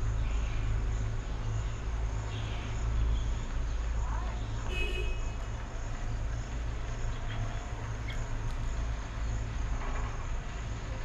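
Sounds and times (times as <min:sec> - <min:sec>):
faint bird chirps: 0:07.0 - 0:08.8.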